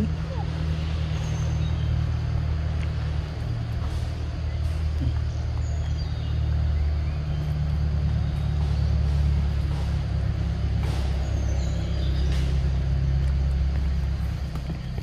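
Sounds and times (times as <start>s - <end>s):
low rumble: 0.0s - 15.0s
bird chirps: 0.1s - 2.1s, 4.4s - 9.5s, 11.0s - 12.9s.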